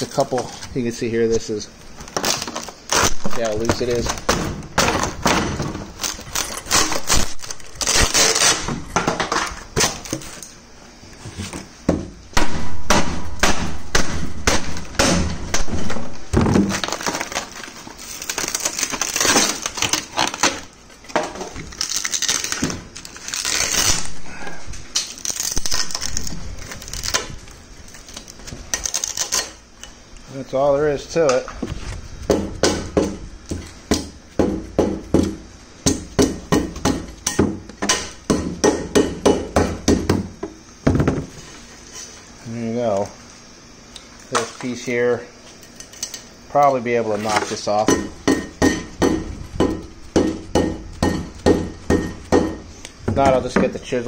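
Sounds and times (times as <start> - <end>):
fiberglass cracking and crunching: 2.0 - 10.5, 12.4 - 30.0.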